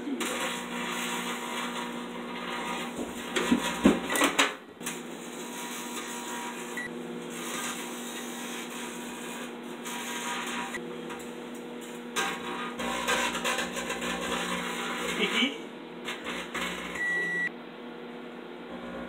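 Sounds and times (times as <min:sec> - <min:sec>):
microwave oven humming: 0:00.0 - 0:19.0
foil arcing and crackling: 0:00.2 - 0:04.1.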